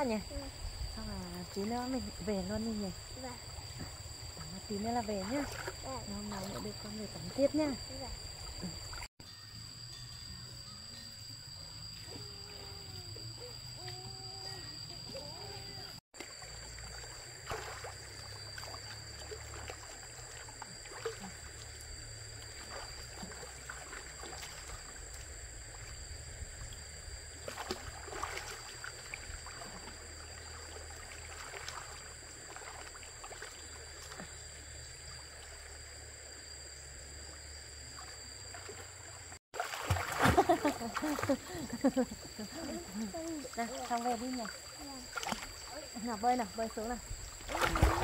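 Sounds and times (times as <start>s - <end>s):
water splashing softly: 1.4s - 9.1s, 16.2s - 34.4s, 38.0s - 48.0s.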